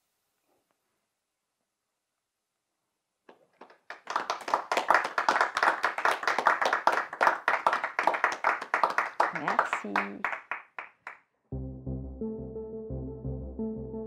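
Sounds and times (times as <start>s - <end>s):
people clapping: 3.3s - 11.3s.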